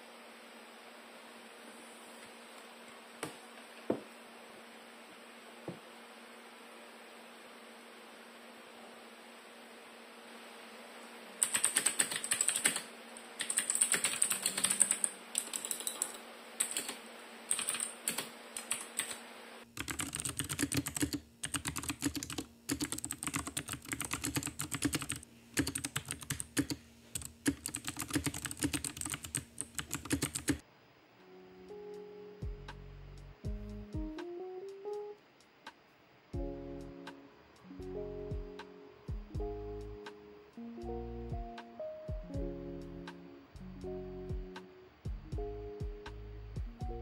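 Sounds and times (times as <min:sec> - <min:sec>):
mechanical keyboard typing: 0:11.4 - 0:19.2, 0:19.8 - 0:30.6.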